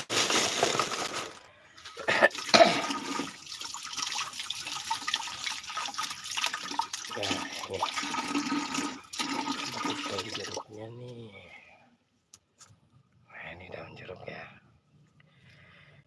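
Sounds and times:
tap water splashing into basin: 2.4s - 10.6s.

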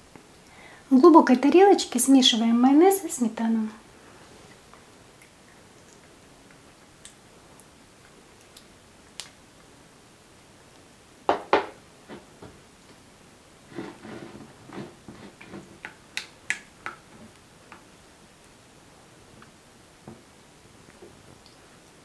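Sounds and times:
spatula scraping glass bowl: 13.7s - 15.7s.

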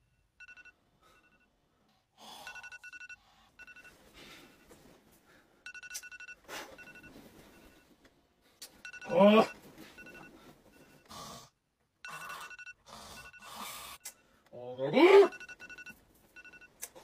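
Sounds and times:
phone alarm two-tone beeps: 0.0s - 1.5s, 2.5s - 4.7s, 5.7s - 7.9s, 8.8s - 11.1s, 12.0s - 13.7s, 15.3s - 16.7s
bedding rustling: 6.5s - 8.6s.

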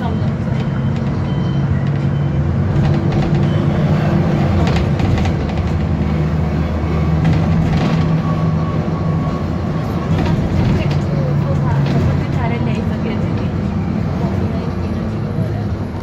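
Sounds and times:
bus engine droning: 0.0s - 16.0s.

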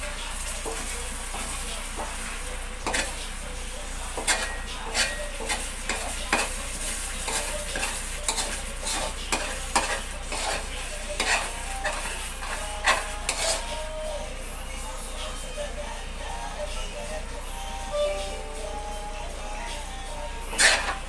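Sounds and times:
pan sizzling: 0.0s - 14.5s, 17.9s - 21.0s
metal spatula scraping wok: 2.8s - 3.3s, 4.1s - 14.0s, 20.5s - 21.0s.

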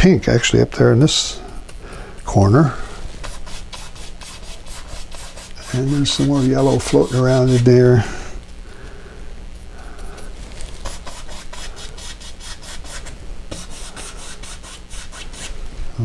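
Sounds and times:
bristle brush scrubbing canvas: 3.0s - 8.1s, 10.3s - 15.6s.

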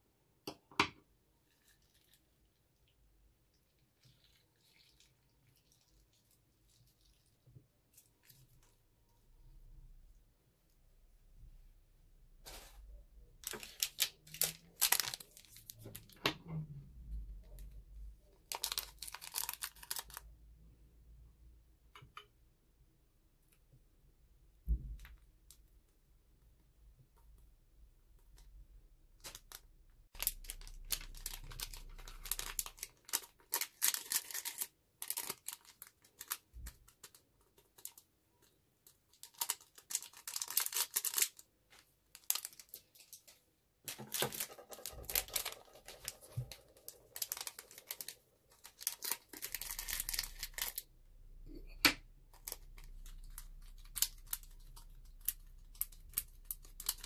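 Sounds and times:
plastic bags crinkling: 13.4s - 16.2s, 18.4s - 20.2s, 29.2s - 38.0s, 39.1s - 43.3s, 43.9s - 50.8s, 52.3s - 57.0s.

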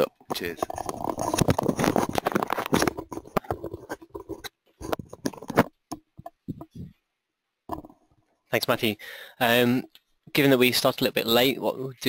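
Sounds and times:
microphone handling noise: 0.4s - 7.0s.

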